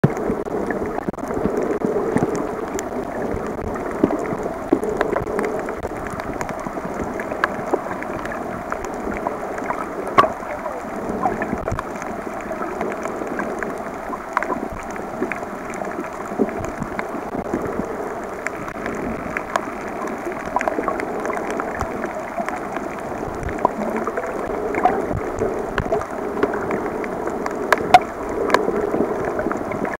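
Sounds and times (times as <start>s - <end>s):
muffled underwater rushing: 0.0s - 30.0s
sharp clicks and crackles: 0.0s - 30.0s.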